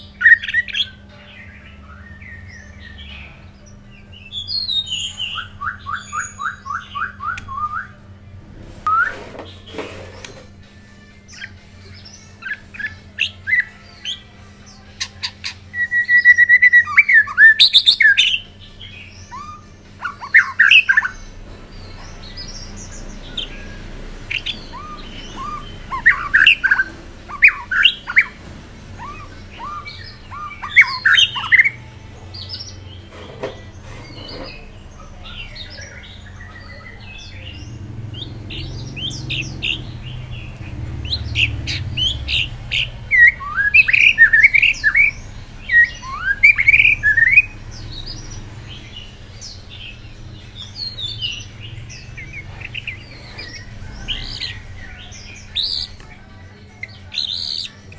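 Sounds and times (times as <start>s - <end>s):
bird singing whistled phrases: 4.3s - 8.0s, 15.2s - 18.4s, 23.3s - 28.4s, 29.0s - 31.8s, 41.2s - 47.6s.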